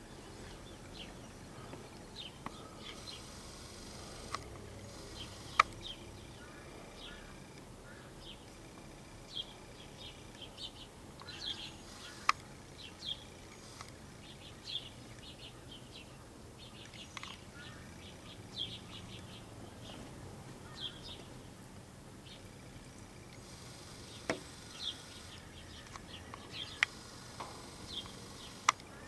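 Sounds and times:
sparrows chirping: 0.0s - 29.0s
sharp clicks: 1.7s - 7.7s, 8.4s - 15.4s, 16.8s - 18.1s, 23.0s - 29.0s.

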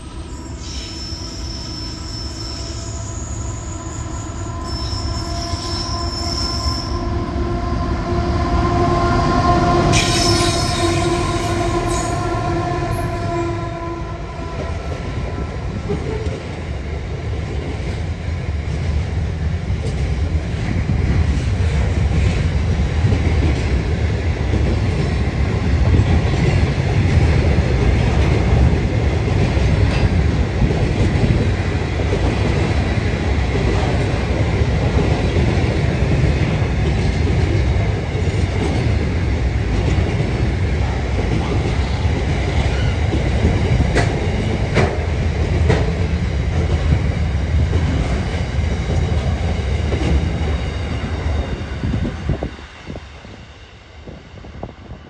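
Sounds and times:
diesel locomotive engines: 0.0s - 55.0s
high wheel squeal: 0.2s - 7.2s, 9.9s - 13.4s.

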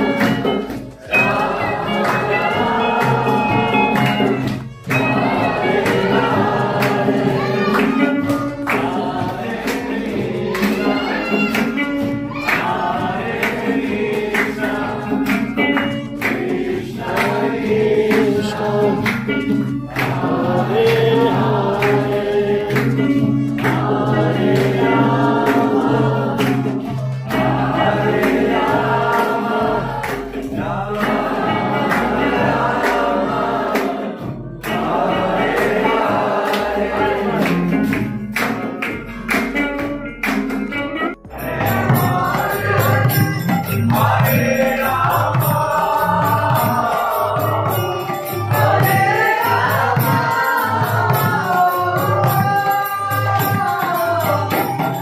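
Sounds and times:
group singing a chant: 0.0s - 39.6s, 41.3s - 55.0s
hand clapping: 0.0s - 41.0s
strummed acoustic guitar: 0.0s - 55.0s.

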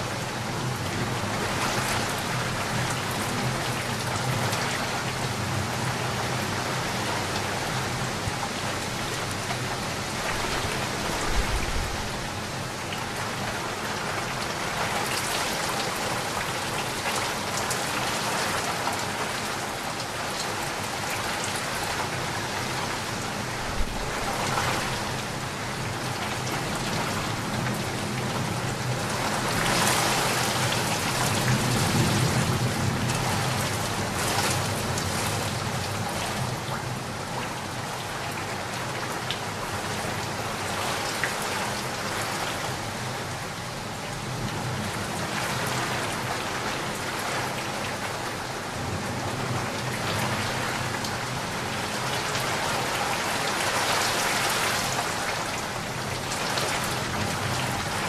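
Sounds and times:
heavy rain pouring: 0.0s - 58.0s.

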